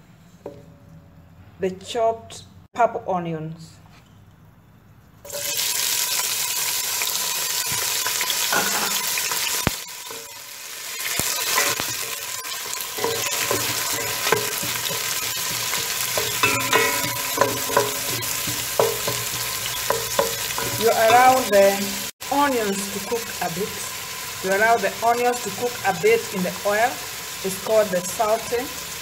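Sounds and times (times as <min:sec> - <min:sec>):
onions sizzling in hot oil: 0:05.3 - 0:29.0
wooden spoon scraping pot: 0:11.4 - 0:22.1.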